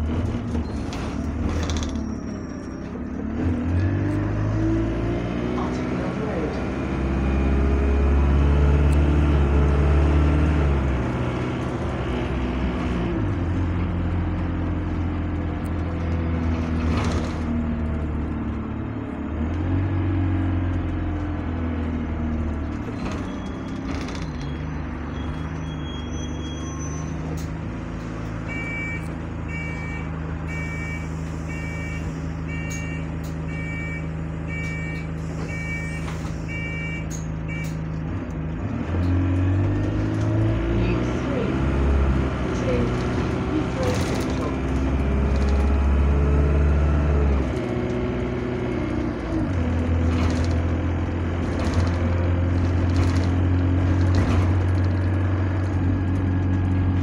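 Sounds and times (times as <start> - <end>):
bus engine humming: 0.0 - 57.0
electronic beeps: 28.5 - 37.7.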